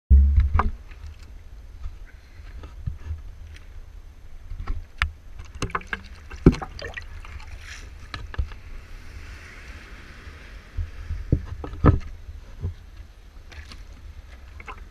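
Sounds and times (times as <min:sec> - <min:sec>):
wind rumble on microphone: 0:00.1 - 0:14.9
rush of water: 0:04.2 - 0:14.9
sea water splashing and sloshing: 0:05.4 - 0:14.9.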